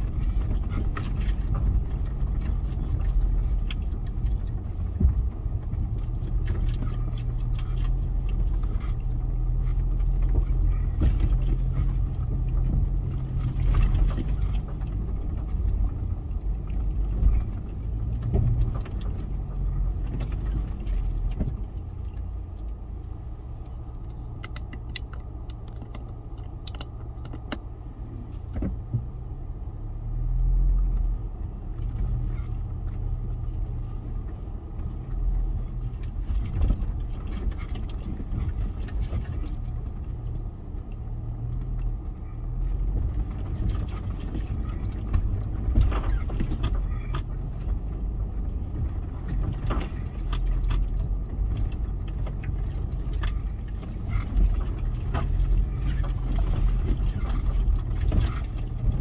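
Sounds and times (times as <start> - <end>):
low engine hum: 0.0 - 59.0
vehicle rattles and knocks: 0.0 - 59.0.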